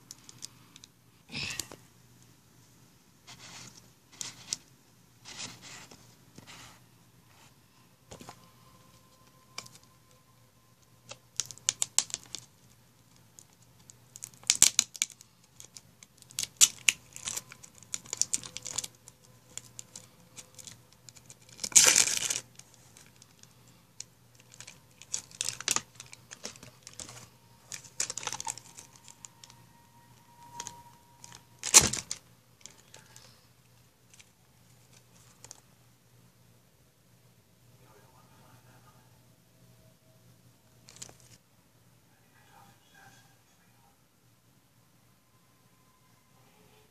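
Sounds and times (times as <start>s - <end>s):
plastic bottles clicking and scraping: 24.4s - 29.5s.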